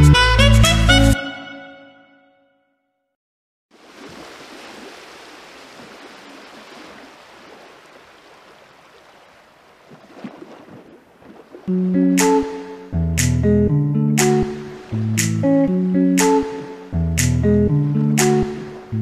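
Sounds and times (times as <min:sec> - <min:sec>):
music: 0:00.0 - 0:03.0, 0:11.7 - 0:19.0
river water: 0:03.7 - 0:13.0, 0:14.0 - 0:19.0.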